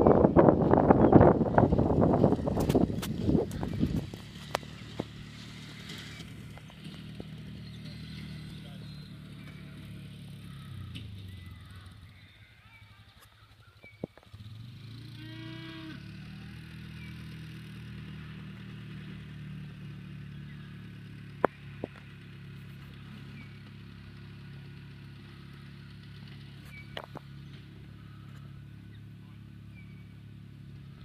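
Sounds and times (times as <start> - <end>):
cattle mooing: 15.2 - 16.5.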